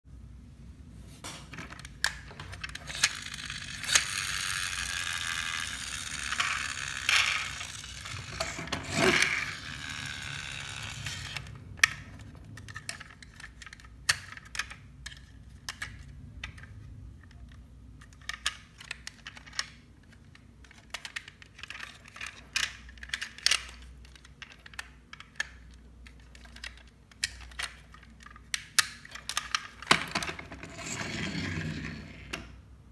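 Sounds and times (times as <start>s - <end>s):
toy truck motor whirring: 2.5s - 12.0s, 30.4s - 32.5s.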